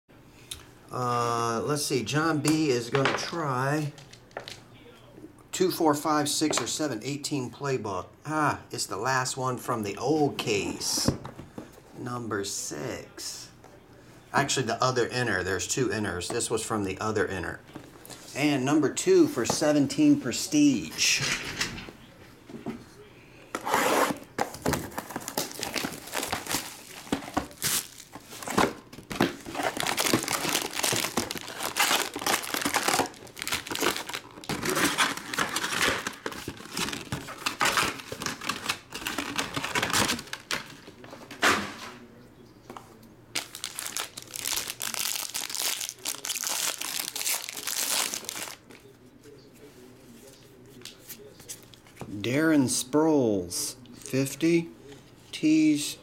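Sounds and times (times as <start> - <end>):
foil packs tearing: 23.7 - 40.7, 43.4 - 48.6
plastic wrap crinkling: 24.5 - 40.9, 43.3 - 48.7.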